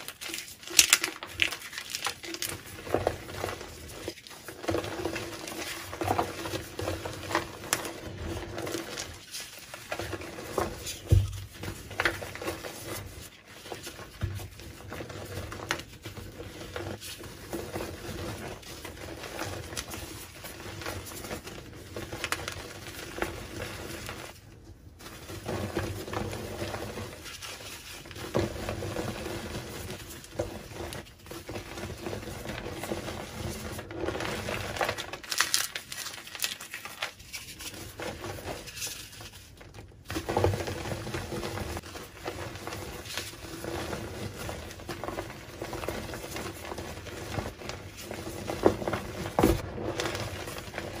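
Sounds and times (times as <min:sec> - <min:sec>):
chalk crumbling by hand: 0:00.0 - 0:24.4.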